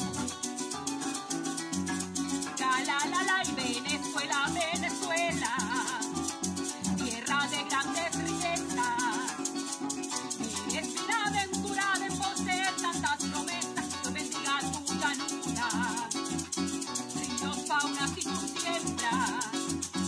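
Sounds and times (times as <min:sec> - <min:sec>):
cuatro strumming: 0:00.0 - 0:20.0
harp plucking: 0:00.0 - 0:20.0
maracas shaking: 0:00.0 - 0:20.0
person singing with vibrato: 0:02.2 - 0:20.0.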